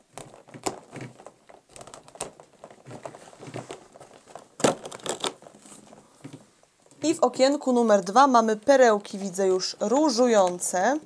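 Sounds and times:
cardboard tearing and crackling: 0:00.0 - 0:06.1.

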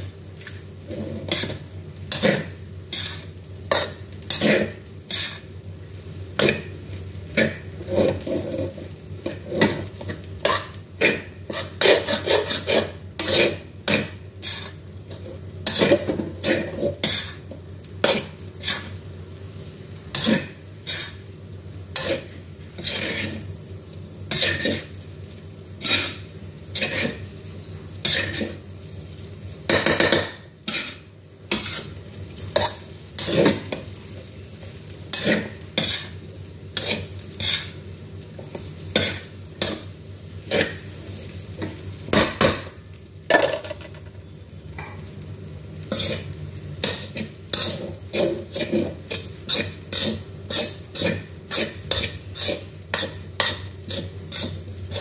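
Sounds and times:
steady sizzle: 0:00.0 - 0:55.0
metal spatula scraping a wok: 0:00.8 - 0:05.5, 0:07.3 - 0:19.0, 0:20.1 - 0:21.3, 0:21.9 - 0:23.5, 0:24.3 - 0:25.0, 0:25.8 - 0:27.3, 0:28.0 - 0:28.6, 0:29.7 - 0:34.1, 0:35.1 - 0:37.8, 0:38.4 - 0:42.6, 0:45.8 - 0:55.0.

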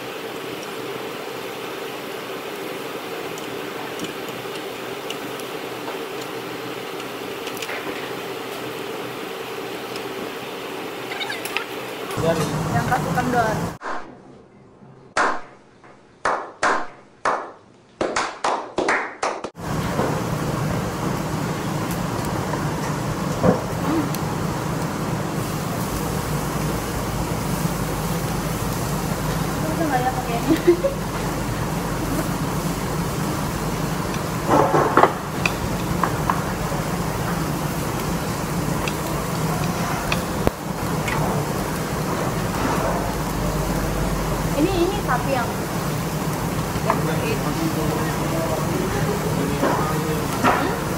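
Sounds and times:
group clapping: 0:15.2 - 0:15.5, 0:16.2 - 0:19.6
restaurant background din: 0:42.4 - 0:50.9.

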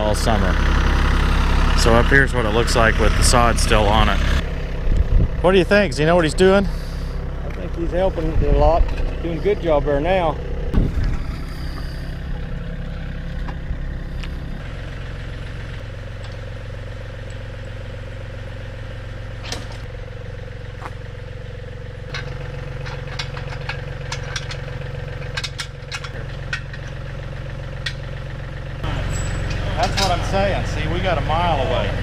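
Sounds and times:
diesel tractor engine idling: 0:00.0 - 0:32.0
metal clicks and clanks: 0:22.1 - 0:27.1, 0:27.8 - 0:28.1, 0:29.0 - 0:30.4.

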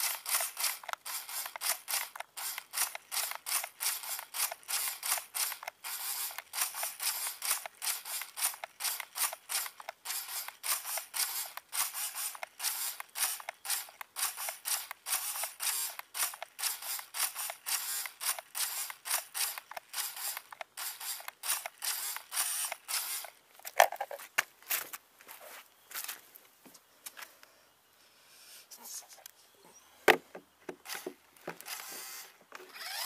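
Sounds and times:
mechanism creaking and clicking: 0:00.0 - 0:24.2.

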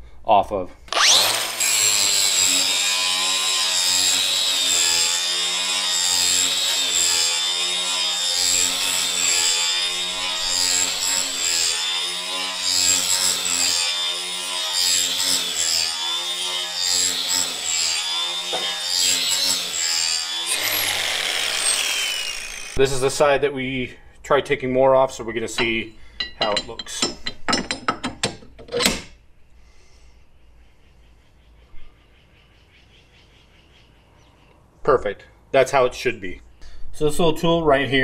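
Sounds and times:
angle grinder grinding metal: 0:00.9 - 0:23.1, 0:25.5 - 0:27.8.

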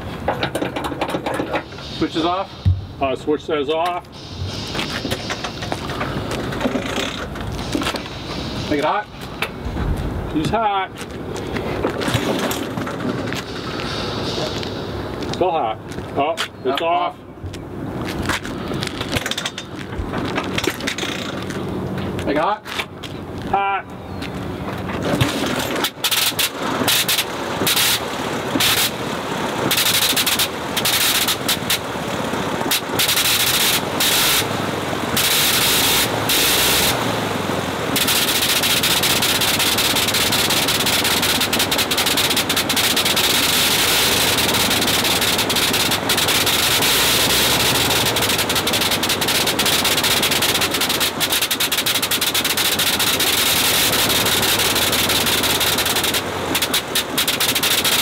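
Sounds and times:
rotary aircraft engine running: 0:32.6 - 0:58.0.

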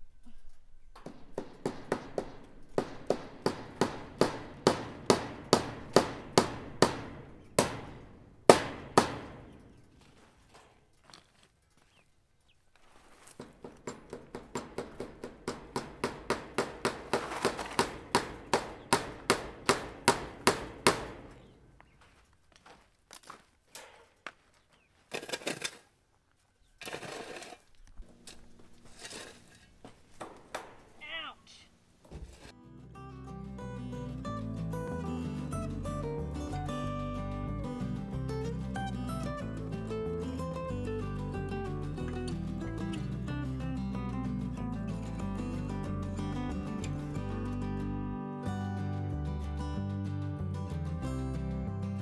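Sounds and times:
metal tool striking rocky soil: 0:15.7 - 0:19.8.

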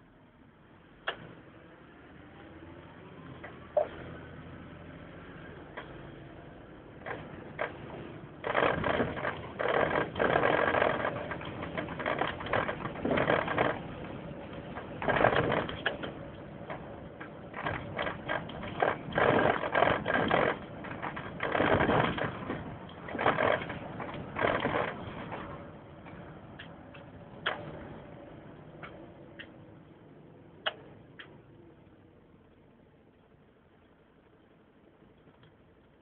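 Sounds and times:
engine and road rumble: 0:00.0 - 0:36.0
rattling and clattering: 0:07.0 - 0:26.3.

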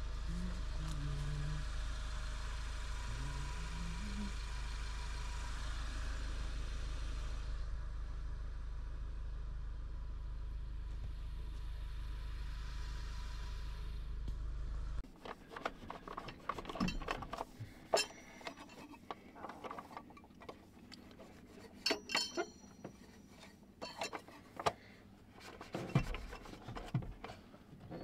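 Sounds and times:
low outdoor rumble: 0:00.0 - 0:28.0
rubbing and scraping on wood: 0:15.0 - 0:28.0.

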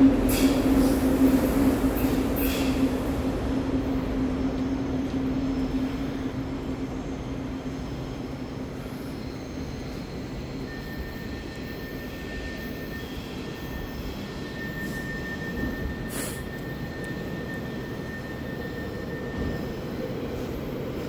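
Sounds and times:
train equipment humming and rushing: 0:00.0 - 0:21.0
thin high whine: 0:08.2 - 0:20.5.

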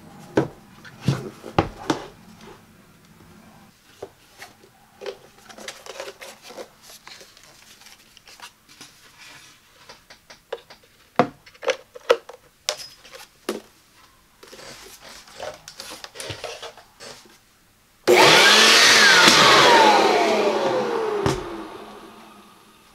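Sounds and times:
leaf blower rushing and whining: 0:18.1 - 0:22.8.

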